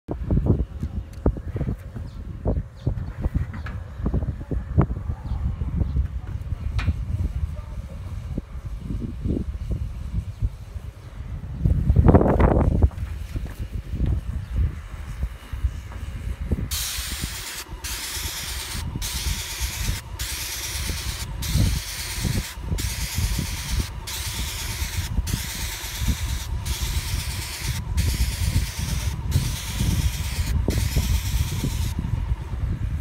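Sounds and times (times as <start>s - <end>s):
paint sprayer gun hissing: 16.7s - 32.0s.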